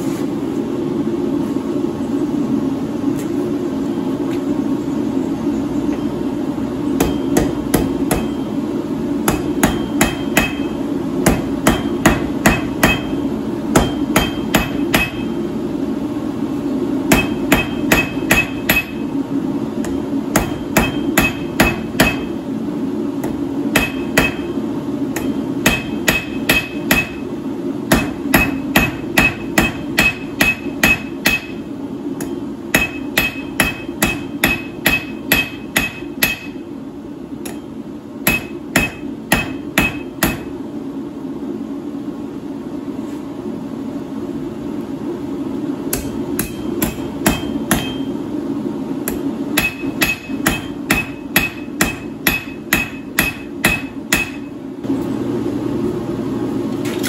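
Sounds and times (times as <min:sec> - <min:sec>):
steady low hum: 0:00.0 - 0:57.0
hammer ringing on anvil: 0:07.0 - 0:08.5, 0:09.3 - 0:15.4, 0:17.1 - 0:19.1, 0:19.8 - 0:22.4, 0:23.2 - 0:24.6, 0:25.2 - 0:27.2, 0:27.9 - 0:31.6, 0:32.2 - 0:36.6, 0:38.3 - 0:40.5, 0:45.9 - 0:48.1, 0:49.1 - 0:54.6.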